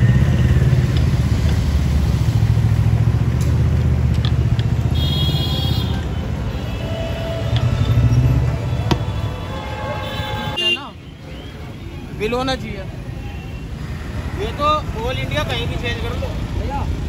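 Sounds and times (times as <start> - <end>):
vehicle rumble on road: 0.0 - 10.4.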